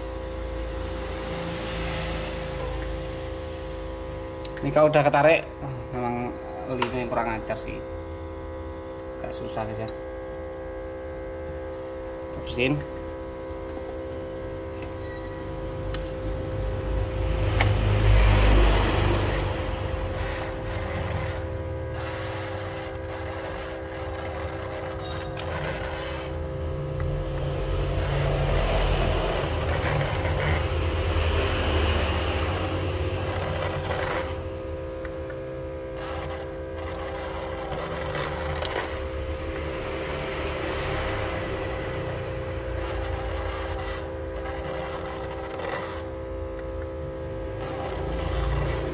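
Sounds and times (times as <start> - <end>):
machine electrical hum: 0.0 - 48.9.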